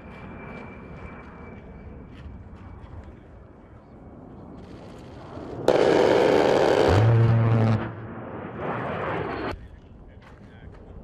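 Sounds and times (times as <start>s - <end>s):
rotary cannon firing: 5.7s - 7.8s.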